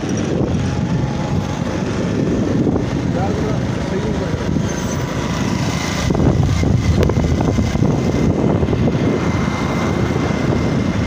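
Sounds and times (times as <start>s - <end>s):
motorcycle engine running: 0.0s - 11.0s
wind and road noise: 0.0s - 11.0s.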